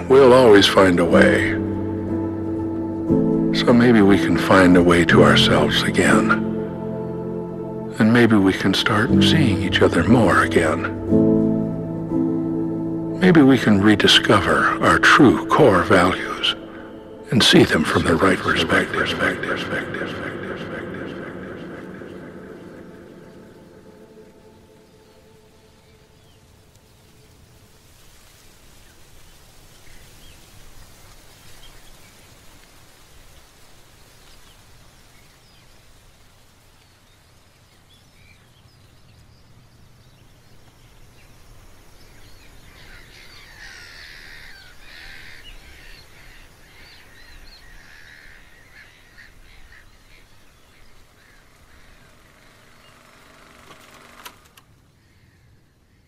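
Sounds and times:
birds chirping: 0.0 - 56.0
steady low rumble: 5.1 - 25.3.

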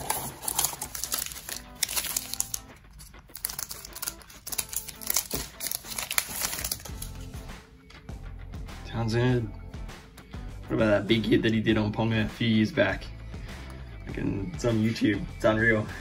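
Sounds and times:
wrapper crinkling: 0.0 - 7.3.

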